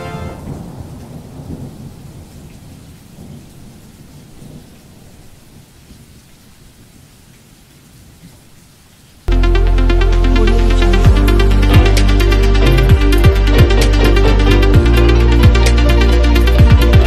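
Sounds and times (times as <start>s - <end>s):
low rumbling: 9.3s - 17.0s.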